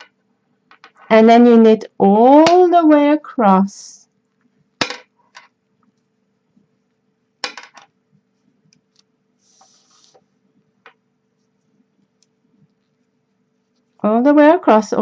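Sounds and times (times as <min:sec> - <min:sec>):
soft rustle: 0:08.0 - 0:10.7, 0:11.3 - 0:14.1.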